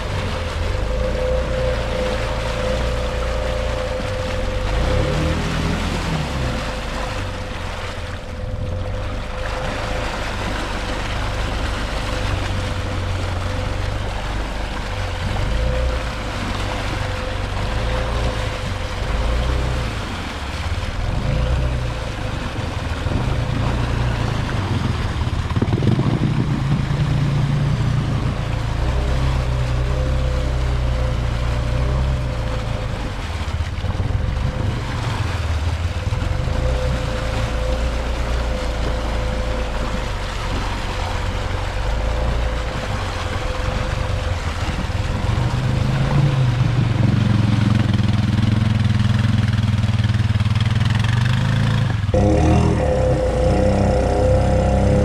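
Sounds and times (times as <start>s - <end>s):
atv engine revving: 0.0s - 7.8s, 8.7s - 33.2s, 33.8s - 55.0s
water and mud splashing: 0.0s - 55.0s.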